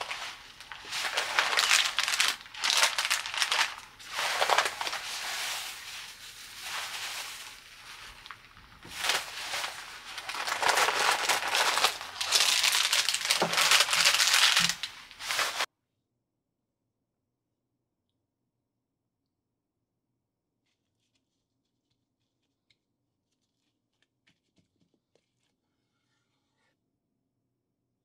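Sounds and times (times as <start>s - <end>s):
plastic packaging crinkling: 0.0s - 15.7s.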